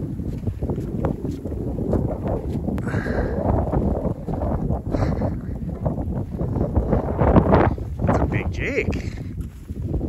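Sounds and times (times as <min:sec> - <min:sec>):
footsteps crunching through snow: 0:00.0 - 0:04.6, 0:09.2 - 0:10.0
wind buffeting microphone: 0:00.0 - 0:10.0.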